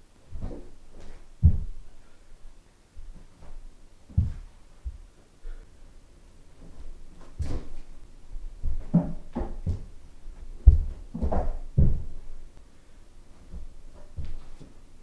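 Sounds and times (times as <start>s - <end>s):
feet thudding on carpet: 0.4s - 1.8s, 3.0s - 5.6s, 6.6s - 7.9s, 8.6s - 12.2s
hands and feet striking wooden table: 10.6s - 12.2s.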